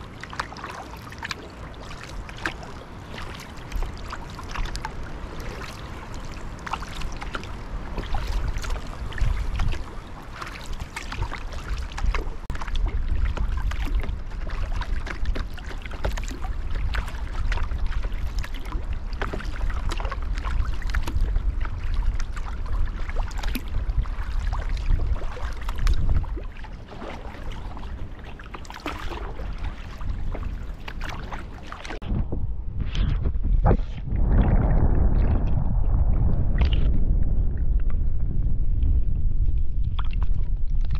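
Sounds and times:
paddle strokes splashing: 0.0 - 32.0
water lapping against kayak: 0.0 - 32.4, 33.3 - 40.9
steady low rumble: 2.2 - 40.9.

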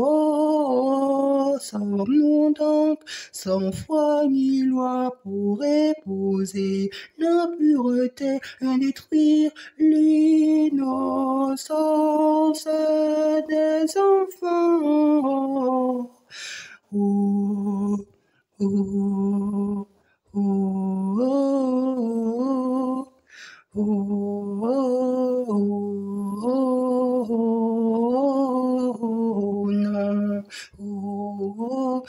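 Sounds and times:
person singing unaccompanied: 0.0 - 32.0
singer breathing: 3.0 - 3.4, 16.2 - 16.9, 23.2 - 23.7.

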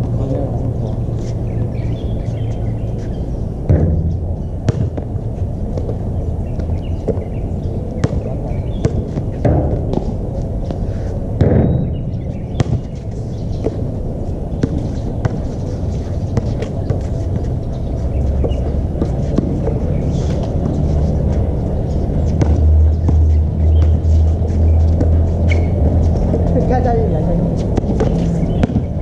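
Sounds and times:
steady low rumble: 0.0 - 29.0
basketball bouncing: 3.6 - 5.2, 8.0 - 10.8, 11.4 - 11.9, 12.6 - 13.8, 14.6 - 15.5, 16.3 - 17.5, 22.2 - 24.2, 27.6 - 29.0.

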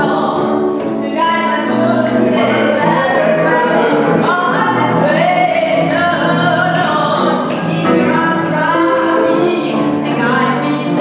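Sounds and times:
gospel choir singing in harmony: 2.0 - 5.9.

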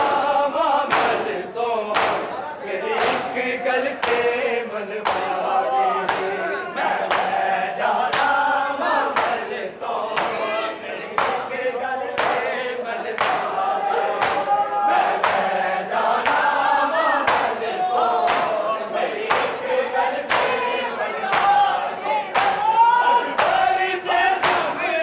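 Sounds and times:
men chanting in chorus: 0.0 - 25.0
rhythmic chest-beating slaps: 0.0 - 25.0.

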